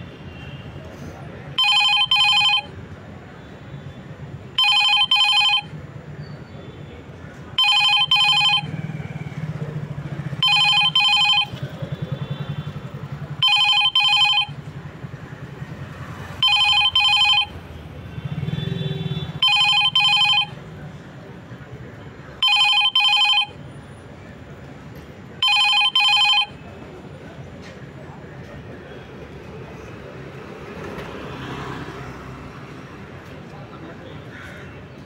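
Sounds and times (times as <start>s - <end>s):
smartphone ringing alert tone: 1.6s - 2.7s, 4.6s - 5.8s, 7.6s - 9.0s, 10.3s - 11.7s, 13.4s - 14.7s, 16.4s - 17.6s, 19.4s - 20.6s, 22.4s - 23.6s, 25.4s - 26.6s.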